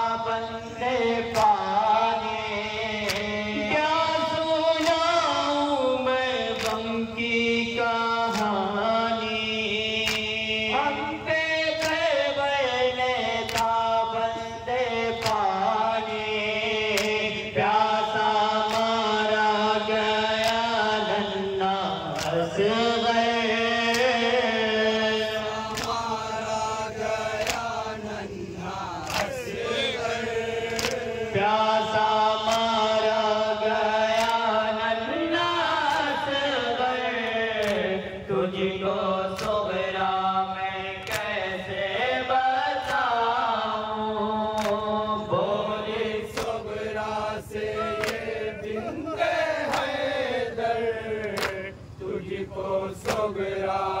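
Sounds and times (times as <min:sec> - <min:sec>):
men chanting in unison: 0:00.0 - 0:54.0
chest-beating slaps: 0:01.3 - 0:01.6, 0:03.0 - 0:03.4, 0:13.5 - 0:13.8, 0:15.2 - 0:15.5, 0:16.9 - 0:17.3, 0:22.1 - 0:22.5, 0:25.5 - 0:31.2, 0:32.5 - 0:32.7, 0:34.1 - 0:34.4, 0:39.4 - 0:39.6, 0:44.6 - 0:44.9, 0:46.4 - 0:46.8, 0:47.6 - 0:49.0, 0:49.6 - 0:50.2, 0:51.2 - 0:51.7, 0:53.0 - 0:53.3.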